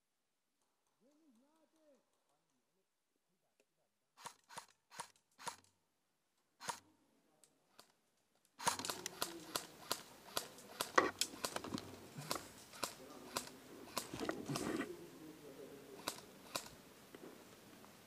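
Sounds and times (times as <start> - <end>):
small clicks: 7.4 - 14.6, 16.0 - 16.8
airsoft rifle shots: 8.6 - 14.8, 16.0 - 16.8
rustle and crunch of movement: 8.6 - 15.2.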